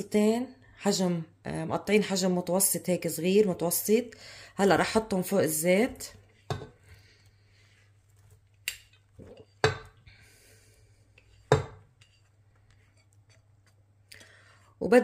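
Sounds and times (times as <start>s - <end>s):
spatula scraping plate: 11.0s - 13.8s.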